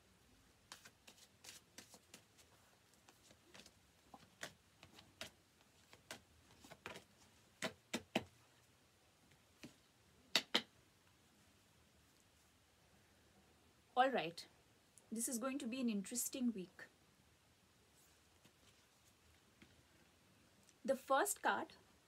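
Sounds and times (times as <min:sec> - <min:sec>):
cards being shuffled: 0:00.7 - 0:08.4.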